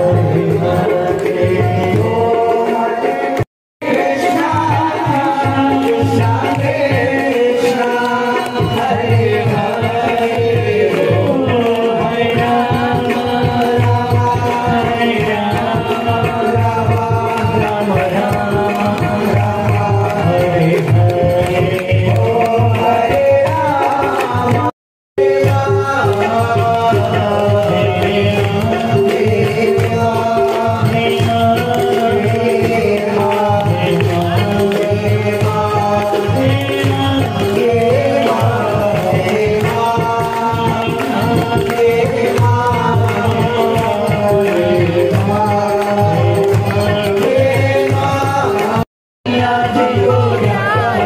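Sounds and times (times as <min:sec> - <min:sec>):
devotional group singing: 0:00.0 - 0:51.0
steady drum beat: 0:00.0 - 0:51.0.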